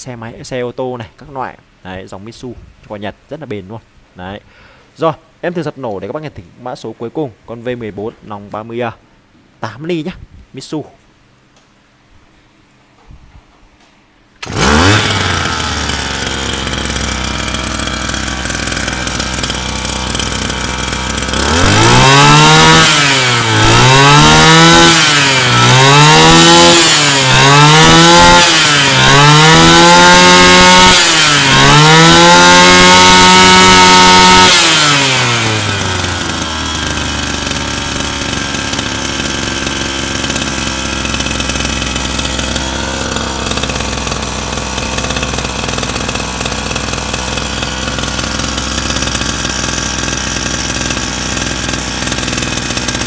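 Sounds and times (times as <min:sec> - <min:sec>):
brush cutter engine revving: 0:14.4 - 0:53.0.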